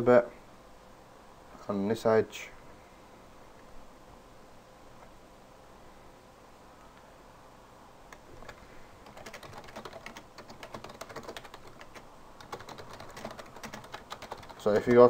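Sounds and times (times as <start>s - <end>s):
computer keyboard clicking: 8.4s - 15.0s.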